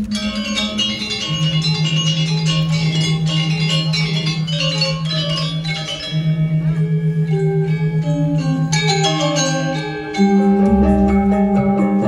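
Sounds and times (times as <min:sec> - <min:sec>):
metallophones ringing: 0:00.0 - 0:12.0
pulsing low tone: 0:10.4 - 0:12.0.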